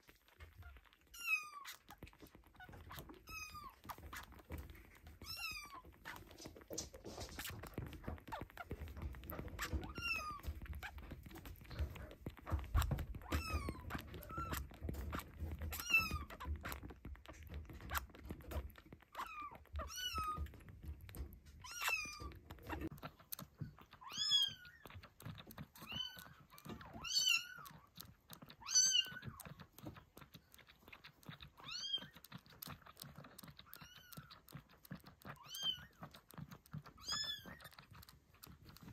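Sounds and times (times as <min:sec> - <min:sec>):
kittens mewing: 0:01.2 - 0:29.6.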